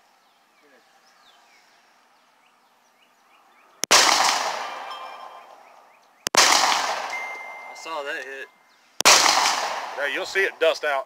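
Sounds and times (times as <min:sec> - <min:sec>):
pistol shots with echo: 0:03.8 - 0:05.6, 0:06.3 - 0:08.0, 0:09.0 - 0:10.5.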